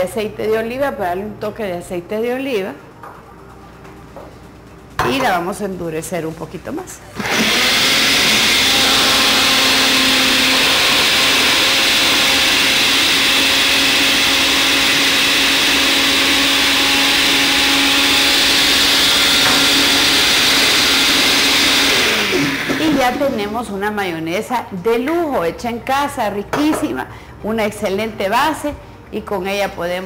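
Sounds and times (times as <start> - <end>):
blender motor whine: 7.2 - 23.4.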